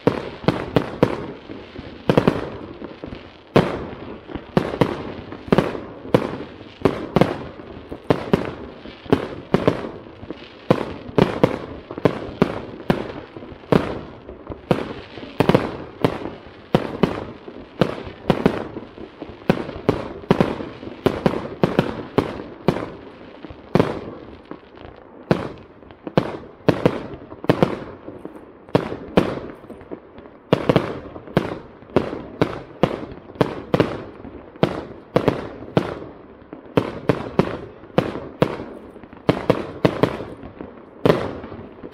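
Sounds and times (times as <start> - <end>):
fireworks bangs: 0.0 - 41.9.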